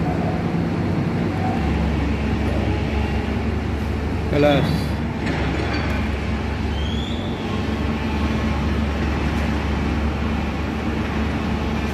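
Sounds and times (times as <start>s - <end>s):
excavator diesel engines droning: 0.0s - 11.9s
short rising squeak: 6.7s - 7.4s.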